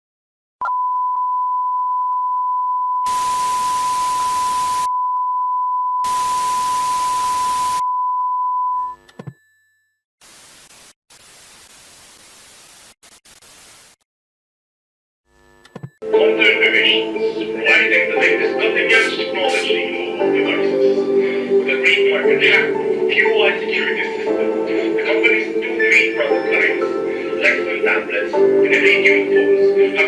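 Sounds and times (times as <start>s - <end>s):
white noise static: 3.1s - 4.9s, 8.7s - 14.0s, 15.3s - 16.0s
test tone beep: 6.0s - 10.0s, 15.3s - 16.0s
glitchy crackle: 8.8s - 14.0s.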